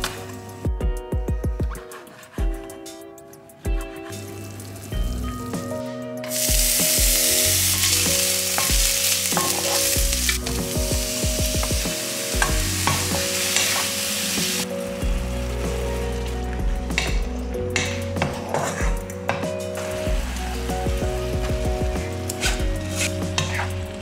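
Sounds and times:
soft background music: 0.0 - 24.0
garlic and mushrooms sizzling in oil: 4.0 - 5.5, 6.3 - 16.4, 19.8 - 24.0.

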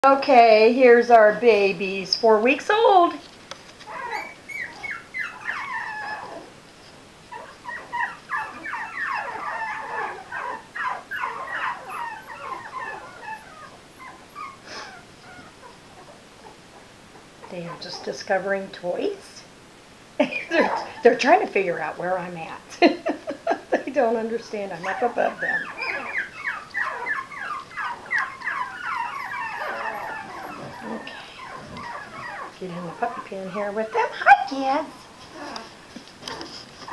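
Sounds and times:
puppies whimpering and yipping: 3.8 - 6.6, 7.2 - 18.4, 20.4 - 21.2, 24.1 - 36.9.

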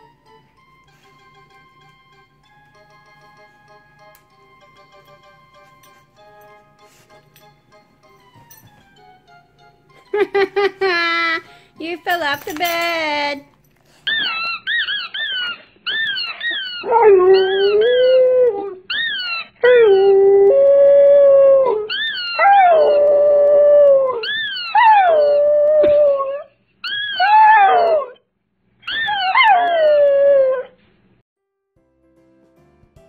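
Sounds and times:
rubber squeaky toy squeaking: 14.0 - 17.7, 18.9 - 19.6
dog howling: 14.1 - 28.2, 28.9 - 30.8.

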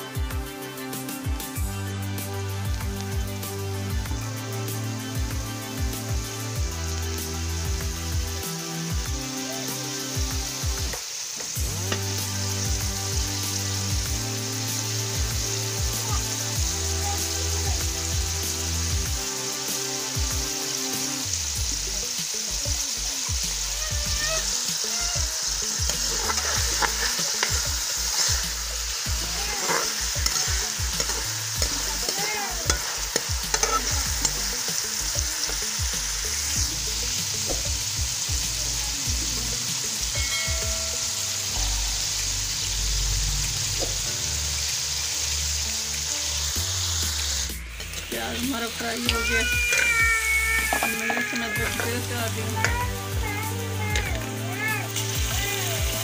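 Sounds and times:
onions sizzling in oil: 0.0 - 56.0
metal spoon scraping pan: 25.8 - 34.6, 49.0 - 50.0, 50.6 - 52.8.

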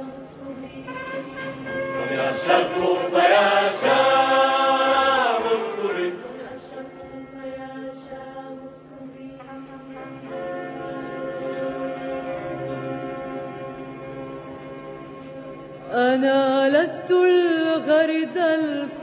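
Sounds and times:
chant-like held voices: 0.0 - 10.4
sustained instrument notes: 0.0 - 19.0.

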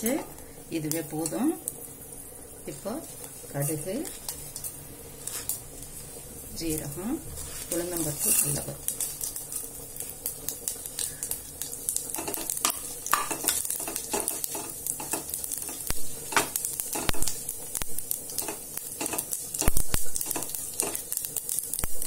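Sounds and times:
seeds sizzling and crackling in oil: 0.0 - 22.0
spatula stirring in pot: 7.3 - 22.0.

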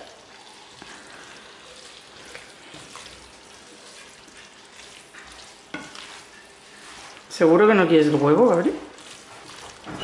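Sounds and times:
food sizzling in a frying pan: 0.0 - 10.0
spatula scraping pan: 3.8 - 10.0.

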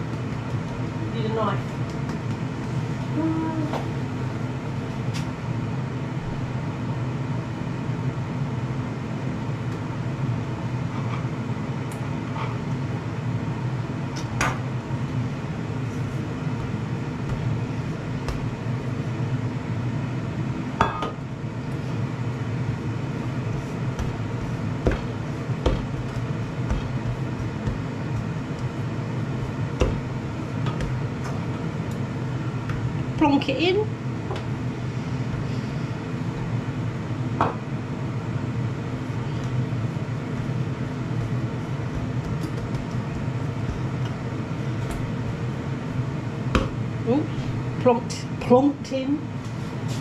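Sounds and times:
air fryer humming: 0.0 - 50.0.

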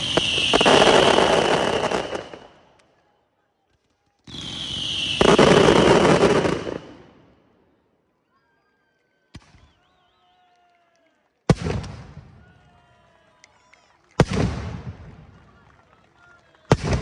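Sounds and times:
fireworks bursting and crackling: 0.0 - 2.8, 3.8 - 7.3, 11.5 - 12.5, 14.1 - 17.0
rush of fireworks noise: 0.0 - 2.9, 3.6 - 7.4, 11.5 - 12.9, 14.1 - 17.0.

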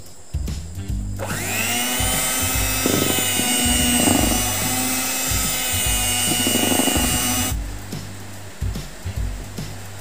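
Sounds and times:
electric hand mixer whining: 1.2 - 7.6.

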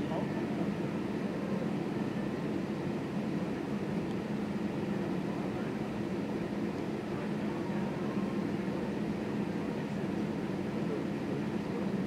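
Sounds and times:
airliner cabin engine hum: 0.0 - 12.0.

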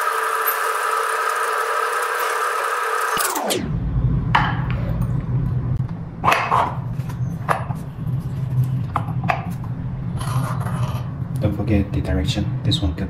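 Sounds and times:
low background hum: 3.4 - 13.0.

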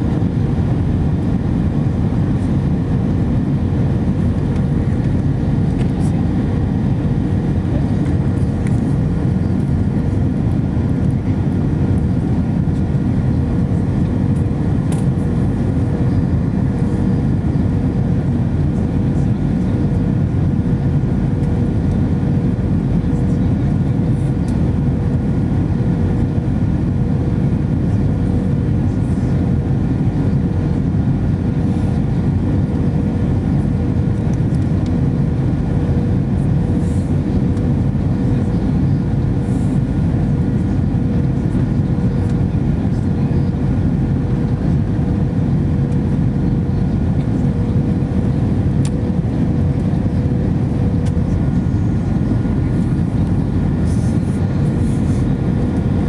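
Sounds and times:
airflow and jet engine rush: 0.0 - 56.0.

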